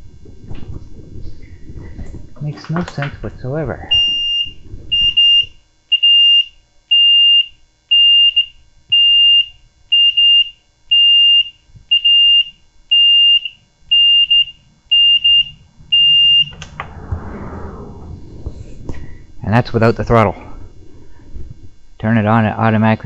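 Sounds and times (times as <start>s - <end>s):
high-pitched warning beeps: 3.9s - 16.6s.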